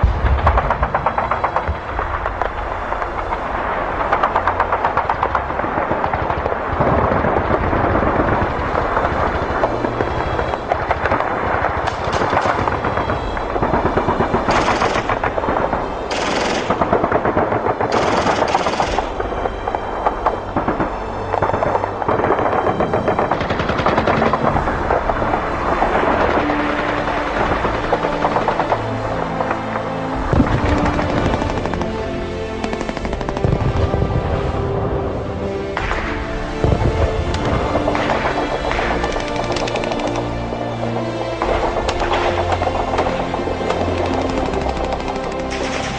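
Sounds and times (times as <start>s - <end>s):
loud blasts: 0.0s - 45.9s
rapid machine-gun fire: 11.8s - 19.3s, 22.1s - 24.6s, 30.3s - 34.0s, 37.4s - 40.4s, 41.9s - 45.9s.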